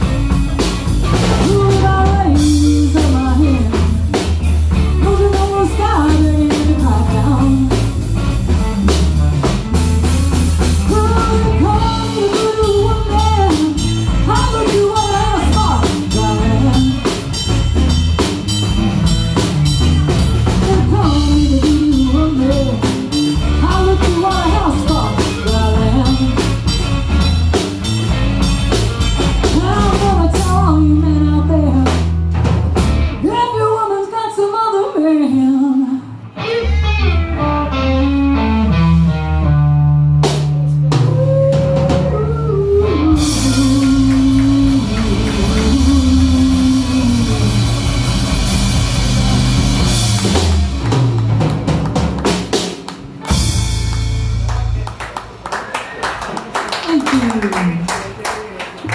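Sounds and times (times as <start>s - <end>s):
drum kit: 0.0s - 33.6s, 36.4s - 58.2s
electric bass: 0.0s - 33.9s, 35.1s - 55.4s
electric guitar: 0.0s - 57.9s
woman singing: 1.1s - 8.1s, 10.8s - 17.4s, 20.5s - 26.7s, 29.4s - 32.1s, 33.2s - 36.2s, 40.9s - 47.6s.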